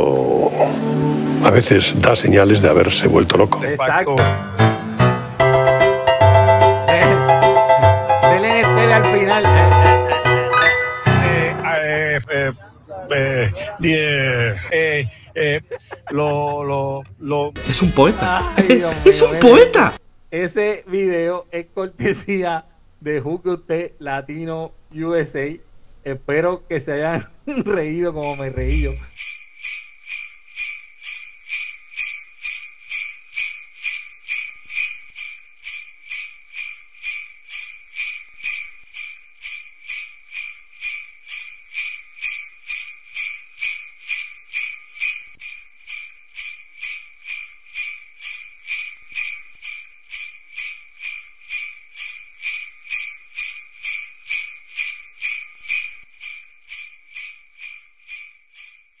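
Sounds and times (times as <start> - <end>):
sleigh bells shaking: 28.2 - 59.0.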